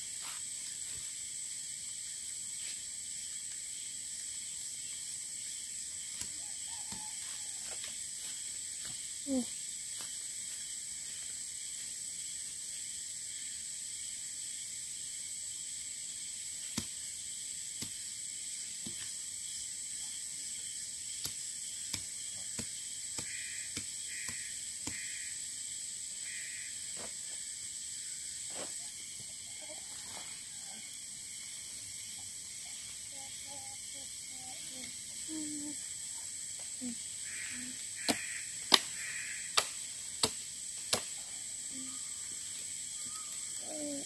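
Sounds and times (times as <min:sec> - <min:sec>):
high-pitched insect drone: 0:00.0 - 0:44.0
tent pole sections snapping: 0:38.0 - 0:39.0, 0:39.6 - 0:41.2.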